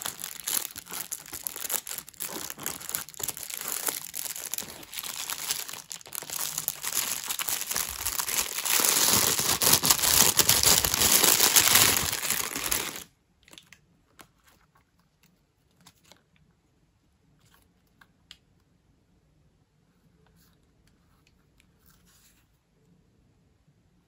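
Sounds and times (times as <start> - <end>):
small handling rustles: 0.0 - 13.1
packaging crinkling and tearing: 0.0 - 13.8.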